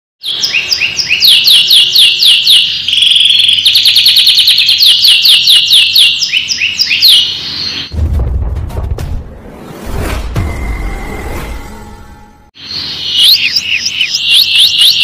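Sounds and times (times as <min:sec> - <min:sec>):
canary singing whistled notes: 0:00.2 - 0:07.9, 0:12.6 - 0:15.0.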